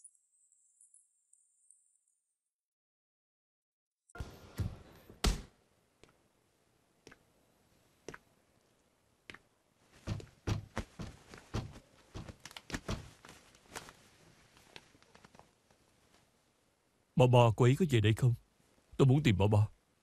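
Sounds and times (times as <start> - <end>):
irregular knocks and thuds: 10.0 - 13.4.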